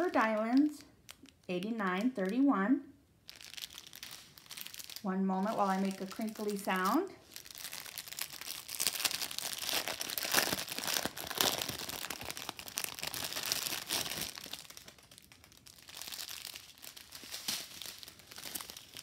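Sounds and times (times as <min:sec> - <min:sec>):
plastic bag crinkling: 0:00.0 - 0:02.4, 0:03.2 - 0:19.0.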